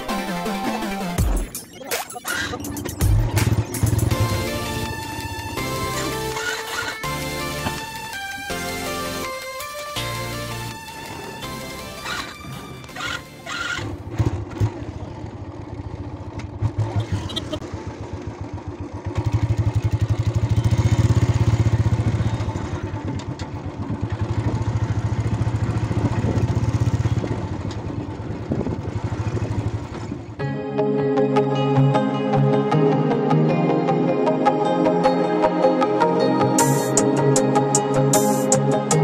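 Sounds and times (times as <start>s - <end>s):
motorcycle engine running: 2.6s - 8.7s, 10.3s - 30.4s.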